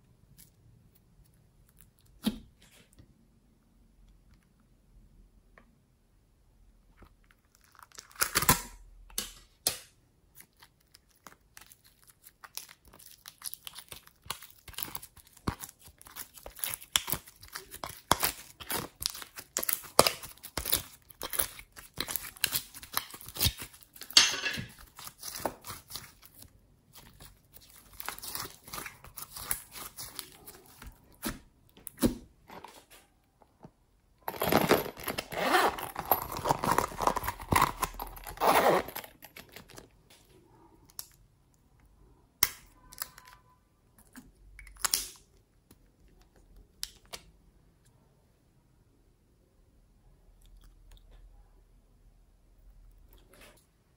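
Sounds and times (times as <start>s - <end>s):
slime squishing with crackles: 6.8s - 47.4s.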